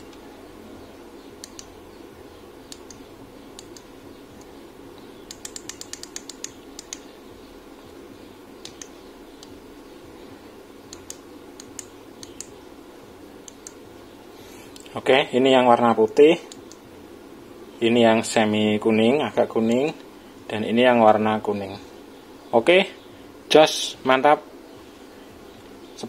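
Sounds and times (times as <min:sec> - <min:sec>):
steady low hum: 0:00.0 - 0:26.0
push-buttons clicking: 0:01.4 - 0:01.7, 0:05.3 - 0:07.0.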